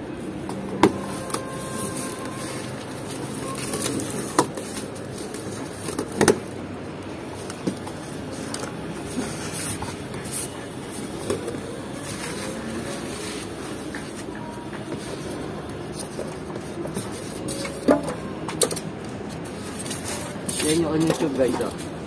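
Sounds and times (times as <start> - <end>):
steady background noise: 0.0 - 22.0
bubble wrap rustling: 1.0 - 6.2.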